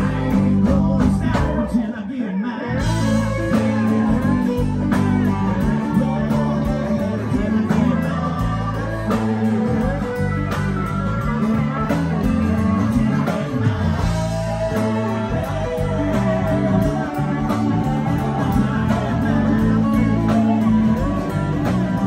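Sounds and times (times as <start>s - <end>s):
live band playing instrumental: 0.0s - 22.0s.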